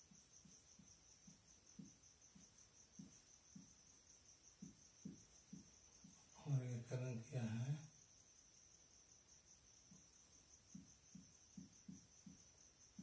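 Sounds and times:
soft low taps: 0.0 - 6.4, 9.9 - 13.0.

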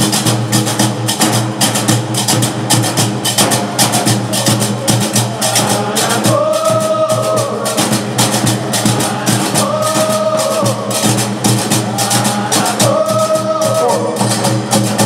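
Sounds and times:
voices holding sung note: 3.4 - 15.0.

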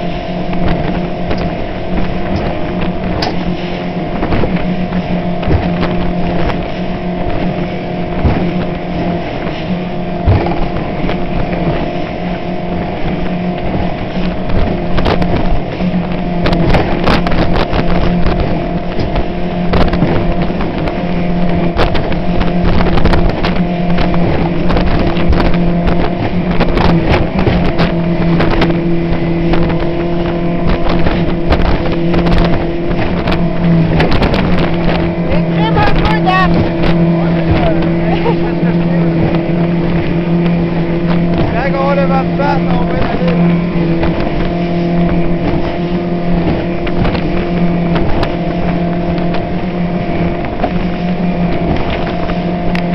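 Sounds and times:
hull slamming into waves: 0.0 - 52.8
motorboat engine running: 0.0 - 52.9
rushing water and spray: 0.0 - 52.9.

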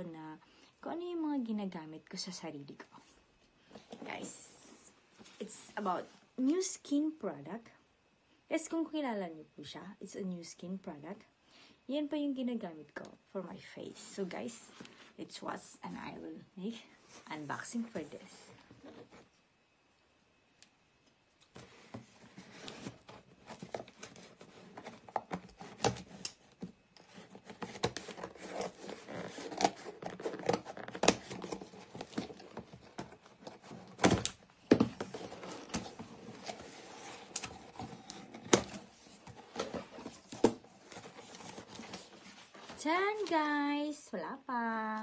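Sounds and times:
packaging rustling: 21.5 - 43.4.

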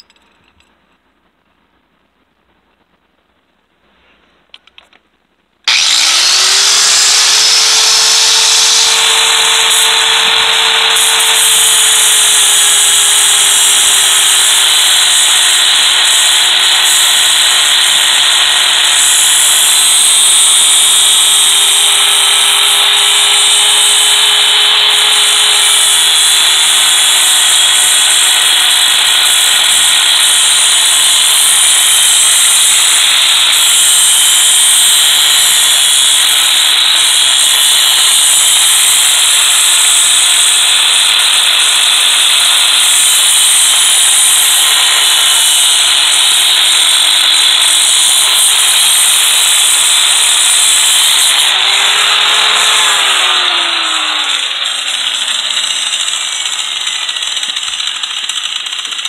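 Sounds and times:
angle grinder motor whine: 5.6 - 59.0
disc grinding metal: 5.7 - 11.4.

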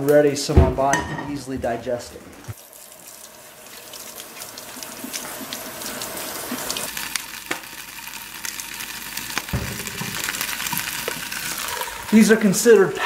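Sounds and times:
tap water running in a sink: 2.5 - 12.8
greens sizzling in a frying pan: 2.6 - 12.8.

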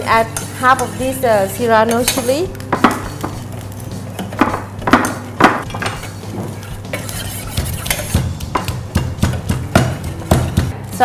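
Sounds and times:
stone pestle pounding in mortar: 2.7 - 3.5, 4.2 - 6.0, 7.0 - 10.7.

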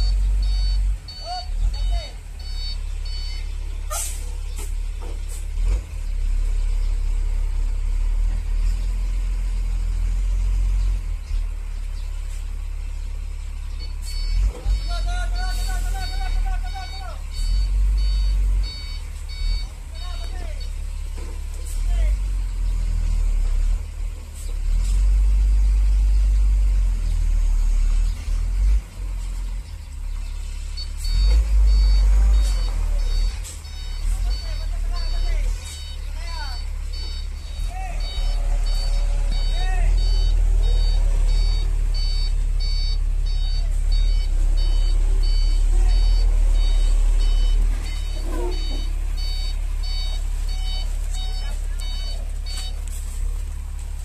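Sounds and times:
reversing beeps: 0.0 - 4.2, 13.7 - 21.3, 30.5 - 53.1
diesel truck engine rumbling: 0.0 - 54.0.

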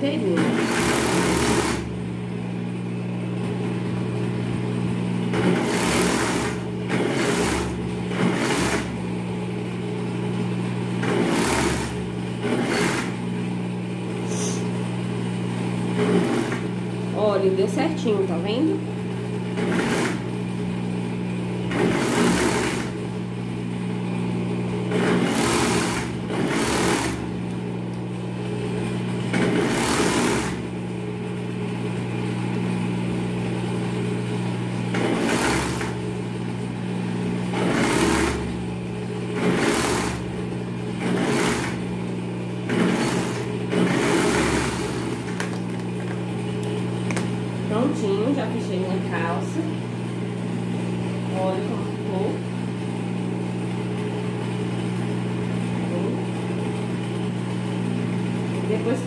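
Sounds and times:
motor hum: 0.0 - 59.0
overlock machine stitching: 0.2 - 2.0, 5.3 - 9.0, 10.9 - 13.3, 15.9 - 16.8, 19.4 - 20.5, 21.6 - 23.2, 24.8 - 27.5, 29.2 - 30.8, 34.9 - 36.2, 37.4 - 46.3.

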